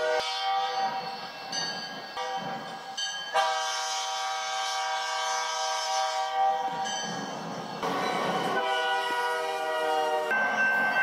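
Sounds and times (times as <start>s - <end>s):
locomotive air horn blast: 0.0s - 0.8s, 3.3s - 6.7s, 7.9s - 10.4s
train noise: 0.0s - 11.0s.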